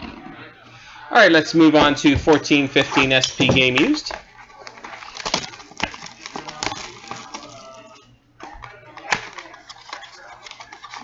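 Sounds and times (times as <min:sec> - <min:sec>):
plastic wrap and cardboard crinkling: 0:01.8 - 0:11.0
card pack handled: 0:02.3 - 0:07.9, 0:09.0 - 0:11.0.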